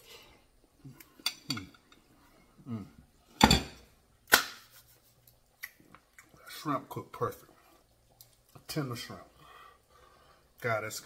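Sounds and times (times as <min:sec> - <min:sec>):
man humming mmm: 0:02.6 - 0:03.0
loud sharp smacks: 0:04.3 - 0:04.7
man eating with lip smacks: 0:05.1 - 0:06.4, 0:07.7 - 0:08.6.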